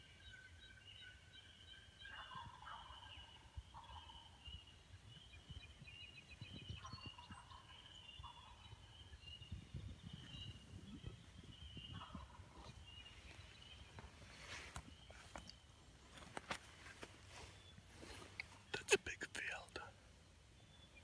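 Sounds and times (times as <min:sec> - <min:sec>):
songbirds singing: 0:00.0 - 0:21.0
turkey gobbling: 0:02.0 - 0:04.4.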